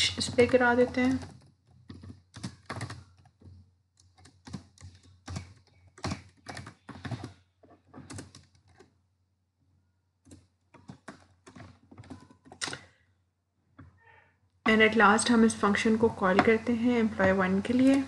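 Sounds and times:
computer keyboard typing: 0:00.0 - 0:09.0, 0:10.2 - 0:12.9.

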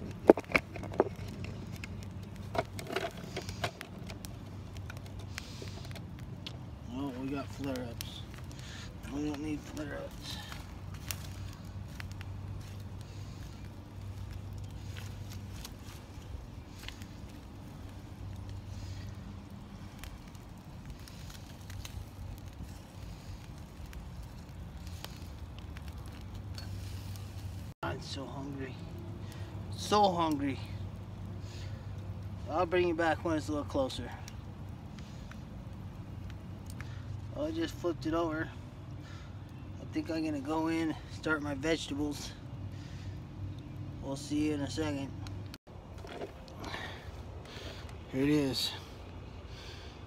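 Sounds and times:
small pops: 0:00.0 - 0:06.8, 0:07.5 - 0:27.6, 0:34.2 - 0:37.2
footsteps in dry grass: 0:00.0 - 0:27.8
campfire crackling: 0:00.0 - 0:50.0
steady low rumble: 0:00.0 - 0:50.0.

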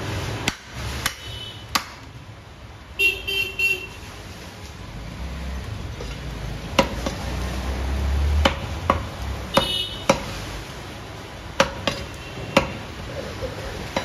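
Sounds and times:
cleaver chopping on wooden block: 0:00.5 - 0:02.1, 0:06.8 - 0:07.2, 0:08.4 - 0:10.3, 0:11.6 - 0:12.8.

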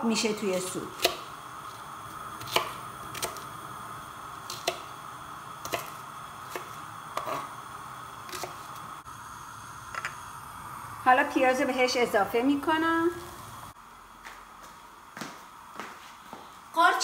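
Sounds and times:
faint hum: 0:00.0 - 0:17.0
knife chopping on cutting board: 0:01.0 - 0:01.2, 0:02.4 - 0:03.4, 0:05.6 - 0:07.5, 0:08.3 - 0:08.6.

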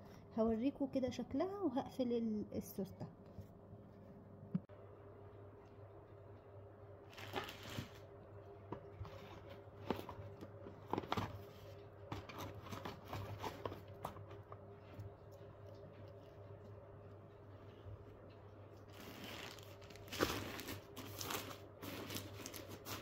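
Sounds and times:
low steady hum: 0:00.0 - 0:23.0
plastic packaging rustling: 0:07.1 - 0:08.1, 0:08.9 - 0:14.6, 0:18.8 - 0:23.0.

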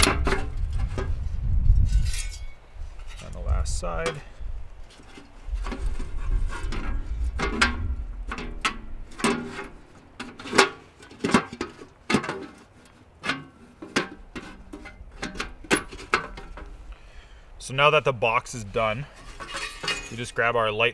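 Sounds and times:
metal panels clinking and knocking: 0:00.0 - 0:01.1, 0:05.0 - 0:16.8, 0:19.1 - 0:20.4.

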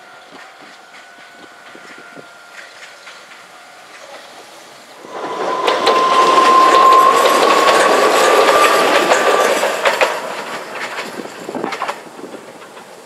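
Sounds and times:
electric train passing: 0:00.0 - 0:13.0
wheels clicking over rail joints: 0:00.2 - 0:13.0
high whine: 0:05.0 - 0:10.5.

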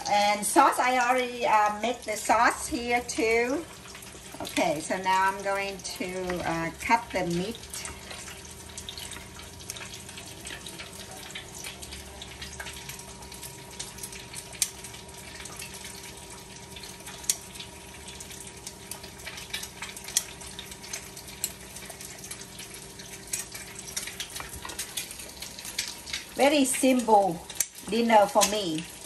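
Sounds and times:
eggs sizzling in hot oil: 0:00.0 - 0:29.0
oil popping: 0:03.4 - 0:29.0.

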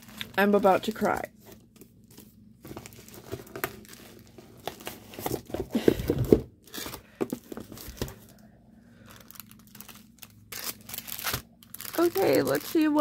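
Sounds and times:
packaging crinkling and rustling: 0:00.0 - 0:13.0.

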